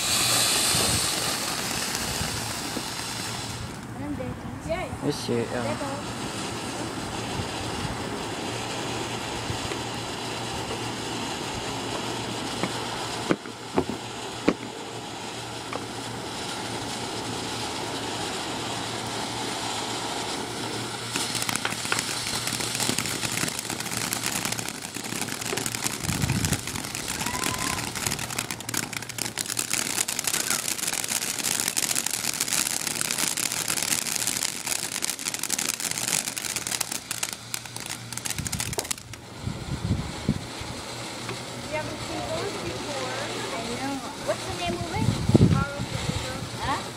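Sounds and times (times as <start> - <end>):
dense crackling: 0.0 - 3.9, 20.9 - 39.2
firework spraying sparks with hiss: 0.0 - 46.9
sharp pops: 12.6 - 14.7, 21.1 - 39.2.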